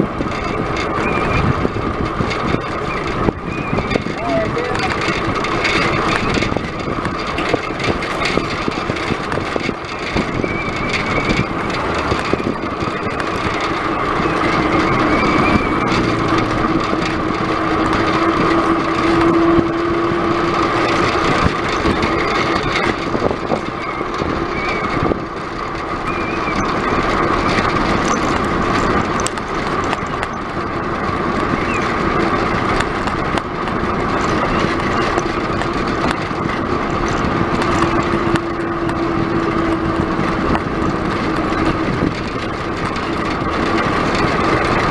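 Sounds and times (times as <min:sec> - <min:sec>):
low tone: 0:00.0 - 0:29.4
bicycle tyre noise on tarmac: 0:00.0 - 0:44.9
constant hum: 0:00.0 - 0:44.9
wind rushing on microphone: 0:00.0 - 0:44.9.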